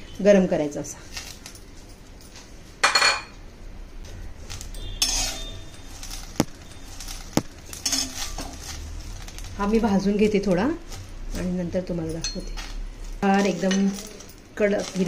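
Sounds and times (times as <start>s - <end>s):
metal spatula scraping a steel pan: 4.6s - 9.4s.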